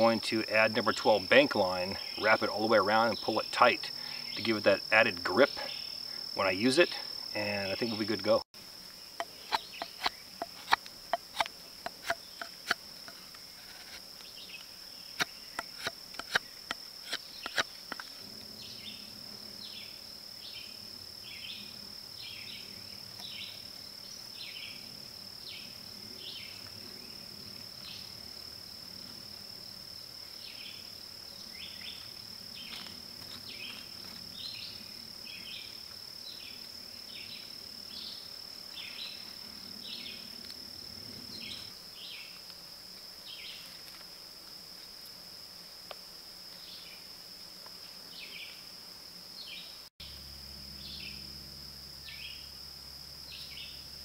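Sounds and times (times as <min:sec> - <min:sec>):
crickets droning: 0:00.0 - 0:54.0
knife scraping wood: 0:09.2 - 0:14.1, 0:15.2 - 0:18.1.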